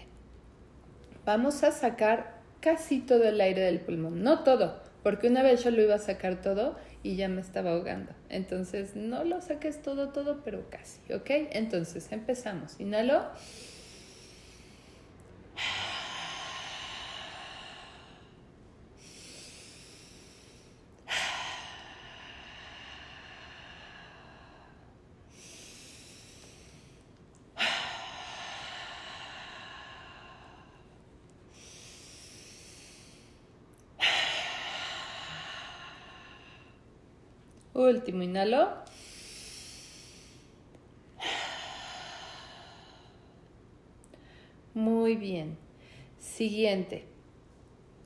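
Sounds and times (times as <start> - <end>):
woman breathing in: 13.3 - 37.0, 38.8 - 44.7, 45.7 - 46.2
woman exhaling hard: 13.4 - 30.9, 34.0 - 36.8, 41.2 - 43.4.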